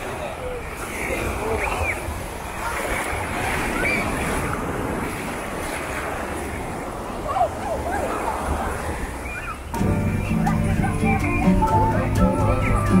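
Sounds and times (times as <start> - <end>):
small waves breaking on beach: 0.0 - 9.8
distant voices: 0.0 - 13.0
wind rumbling on microphone: 0.0 - 13.0.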